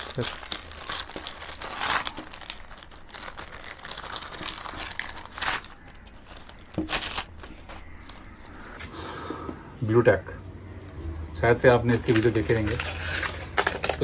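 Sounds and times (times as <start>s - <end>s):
plastic pouch crinkling: 0.0s - 8.7s, 11.8s - 14.0s.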